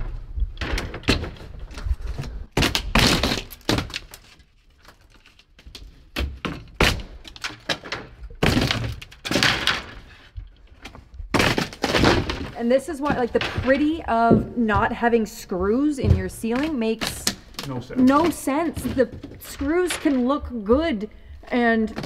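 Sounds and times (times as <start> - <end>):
wood cracking and crashing down: 0.4 - 14.4.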